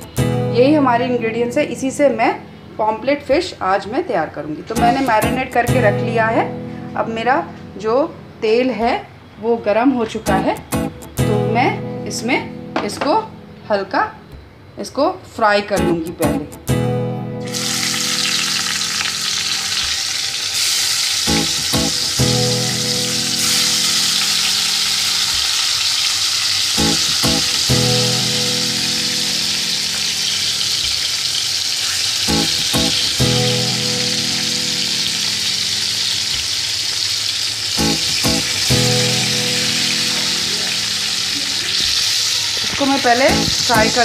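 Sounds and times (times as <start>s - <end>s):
fish sizzling in hot oil: 17.4s - 44.0s.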